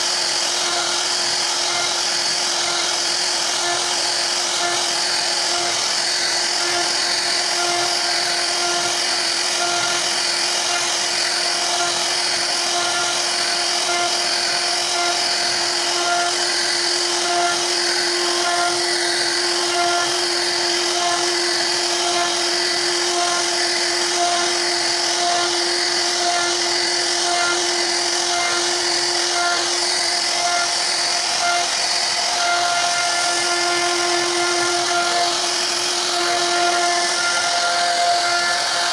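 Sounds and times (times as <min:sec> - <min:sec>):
bit cutting wood: 0:00.0 - 0:38.9
router spindle whine: 0:00.0 - 0:38.9.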